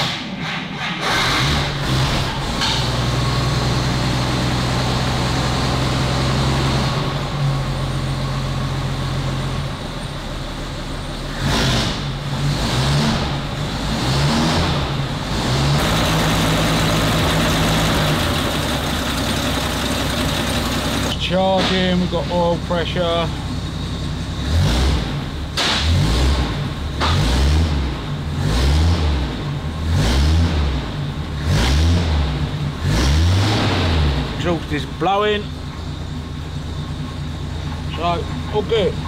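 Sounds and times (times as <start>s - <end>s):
car engine idling: 14.9s - 27.0s, 34.2s - 39.0s.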